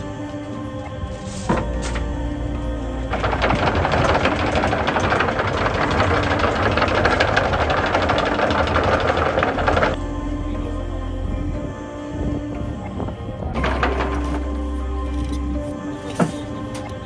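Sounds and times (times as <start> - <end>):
small engine rattling: 3.1 - 10.0.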